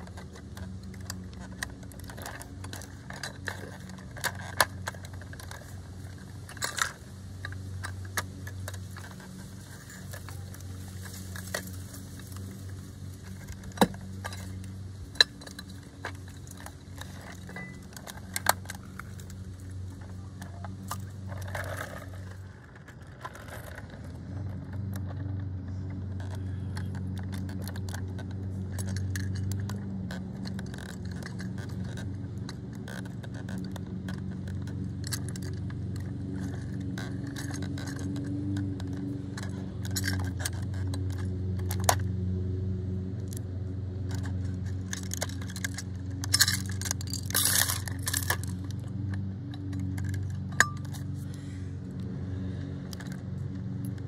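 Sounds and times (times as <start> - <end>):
low steady hum: 0.0 - 54.0
toy truck clicks and metallic rattles: 0.0 - 54.0.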